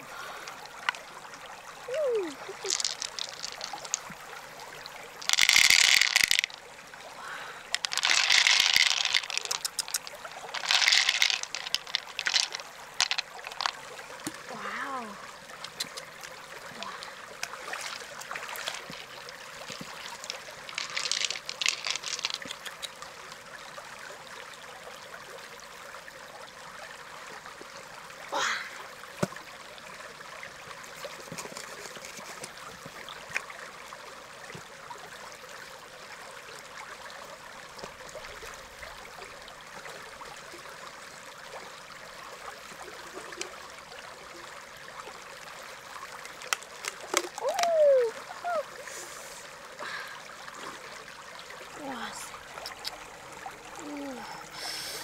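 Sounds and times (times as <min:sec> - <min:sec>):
river water running: 0:00.0 - 0:55.0
small splashes: 0:01.9 - 0:04.3, 0:05.1 - 0:23.1, 0:46.1 - 0:49.0.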